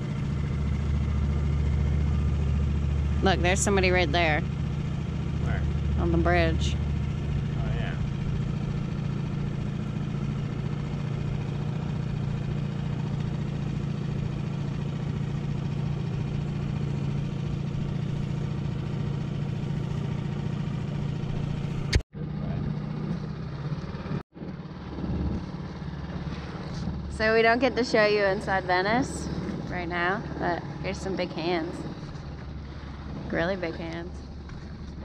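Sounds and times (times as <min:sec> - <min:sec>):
small outboard motor humming: 0:00.0 - 0:35.0.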